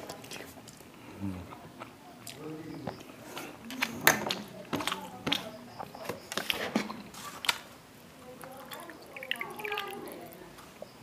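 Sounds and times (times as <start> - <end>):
chewing: 0.0 - 7.7.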